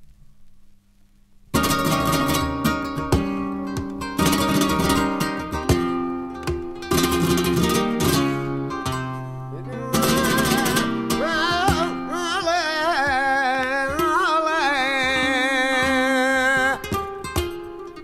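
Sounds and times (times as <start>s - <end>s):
strummed guitar chords: 1.6s - 18.0s
man singing wordless melisma: 9.3s - 17.7s.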